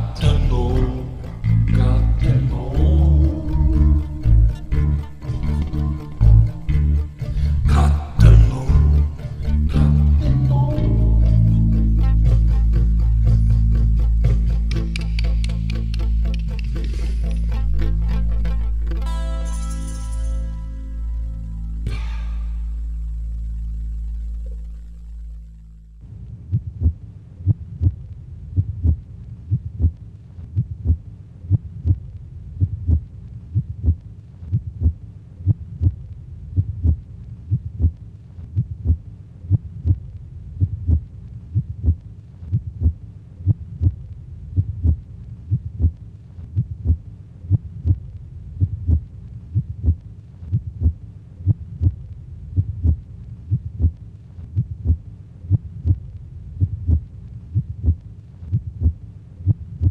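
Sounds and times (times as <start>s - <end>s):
faint hum: 0.0s - 59.9s
heartbeat thumps: 26.1s - 59.9s.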